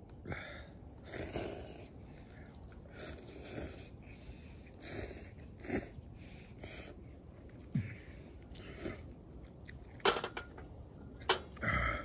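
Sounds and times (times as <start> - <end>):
noodles slurped: 0.9 - 9.9.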